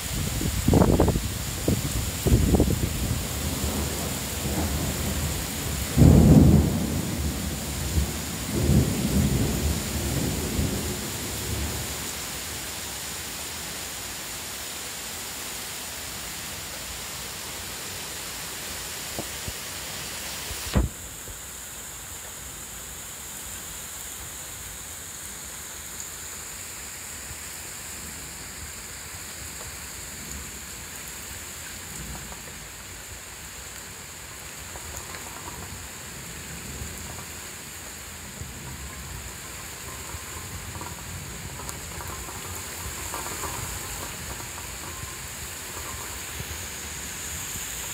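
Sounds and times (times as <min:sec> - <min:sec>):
heavy rain hissing: 0:00.0 - 0:47.9
sharp knock: 0:20.7 - 0:21.0.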